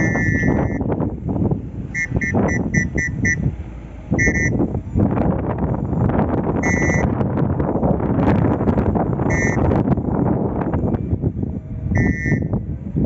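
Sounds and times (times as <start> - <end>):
short high beeps: 0.0 - 0.8
wind rumble on microphone: 0.0 - 13.0.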